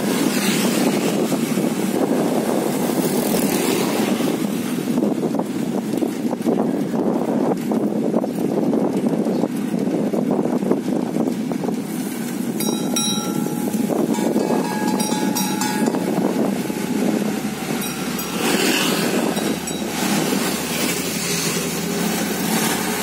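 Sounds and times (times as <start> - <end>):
road rumble: 0.0 - 23.0
wind noise: 0.0 - 23.0
motor vehicle passing: 15.0 - 23.0.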